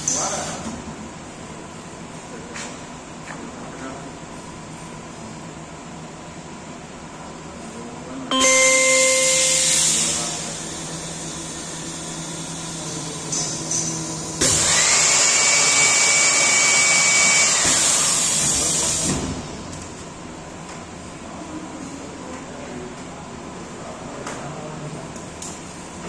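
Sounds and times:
machine whine: 8.3 - 19.1
machine air rush with whistle: 8.4 - 12.6.

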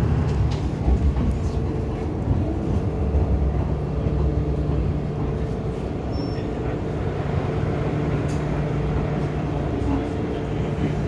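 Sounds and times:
train hum and rumble: 0.0 - 11.0
faint high squeak: 6.1 - 6.6.

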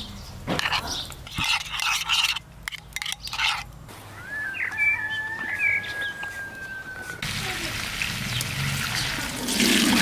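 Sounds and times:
bird chirps: 4.1 - 7.2
long whistled bird note: 4.1 - 7.2.

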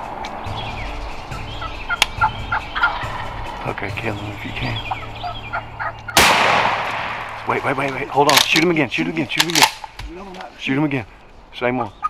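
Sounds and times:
turkeys calling: 0.0 - 12.0.

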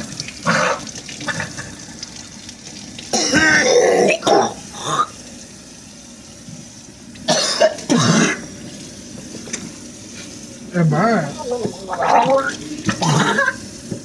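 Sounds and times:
man coughing and clearing throat: 3.1 - 4.6, 7.3 - 8.4, 12.9 - 13.6.

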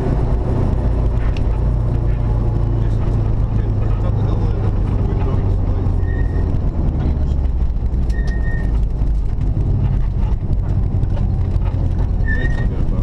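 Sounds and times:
car engine running under load: 0.0 - 13.0
road and drivetrain rumble: 0.0 - 13.0.

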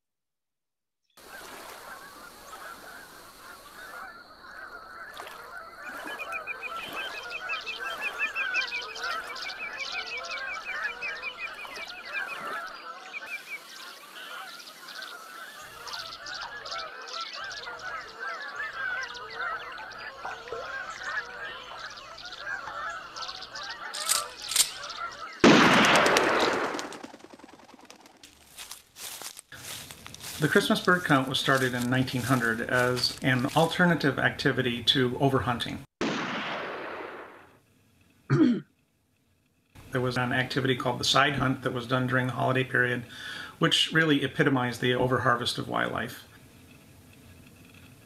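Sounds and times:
geese honking: 1.2 - 27.6, 28.3 - 35.6
bird trilling: 1.3 - 33.6
sharp cracks: 24.0 - 28.6, 36.0 - 37.6.

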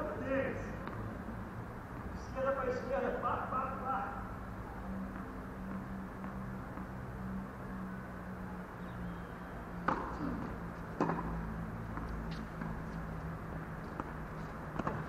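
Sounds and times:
tennis ball bouncing on court: 5.1 - 7.0, 9.8 - 13.0, 13.8 - 15.0
tennis ball hit by rackets: 9.8 - 11.4, 14.7 - 15.0.

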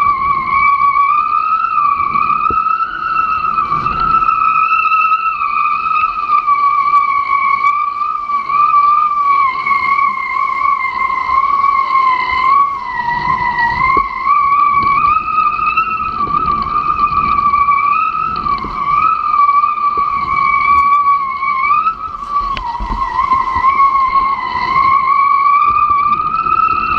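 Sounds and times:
rig whistling high whine: 0.0 - 26.9
rushing wind and water: 0.0 - 26.9.

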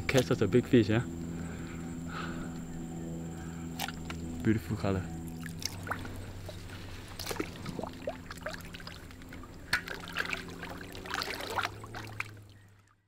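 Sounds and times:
low hum: 0.0 - 13.0
shallow water splashing: 5.3 - 12.9.

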